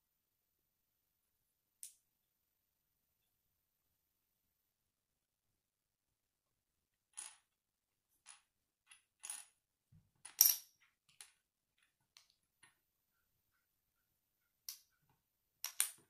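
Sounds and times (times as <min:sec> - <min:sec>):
plastic bricks clicking together: 0:15.6 - 0:16.0.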